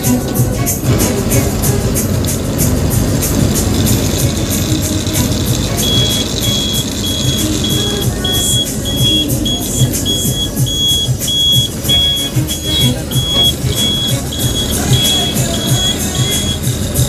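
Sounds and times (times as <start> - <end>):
bus diesel engine running: 0.0 - 17.0
short high beeps: 5.8 - 16.7.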